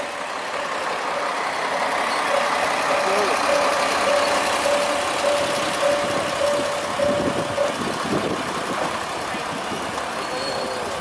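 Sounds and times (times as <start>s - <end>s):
diesel railcar engine running: 0.0s - 11.0s
repeating beeping tone: 2.1s - 7.8s.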